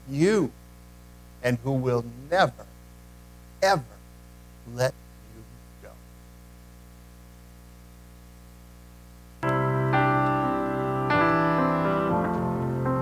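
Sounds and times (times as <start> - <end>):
low steady hum: 0.0 - 11.1
piano chords: 9.4 - 13.0.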